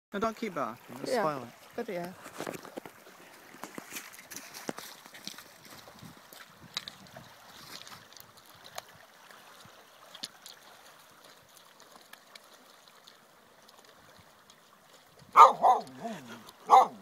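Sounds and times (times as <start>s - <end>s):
waves lapping on pebbles: 0.2s - 17.0s
dog barking: 15.4s - 16.1s, 16.7s - 17.0s.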